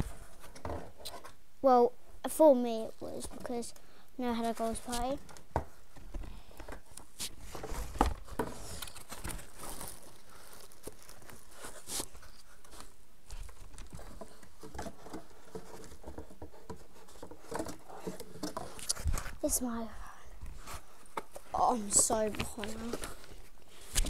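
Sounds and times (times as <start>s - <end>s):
packaging rustling and crinkling: 6.0s - 19.5s.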